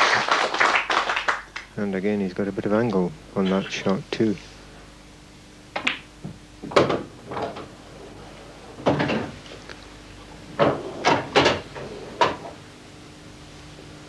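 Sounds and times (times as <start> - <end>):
pool balls clicking: 5.7 - 7.8.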